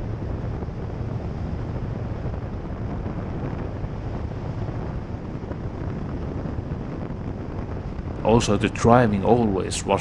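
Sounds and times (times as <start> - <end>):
motorcycle engine drone: 0.0 - 10.0
wind rushing over microphone: 0.0 - 10.0.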